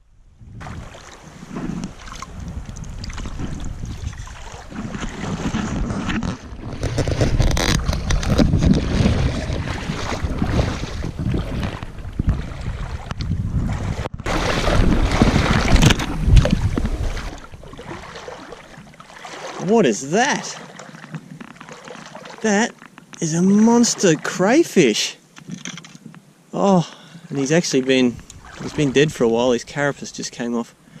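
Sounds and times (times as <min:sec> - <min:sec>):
wind buffeting microphone: 0:00.0 - 0:18.3
water sloshing and splashing: 0:00.6 - 0:24.6, 0:27.4 - 0:29.9.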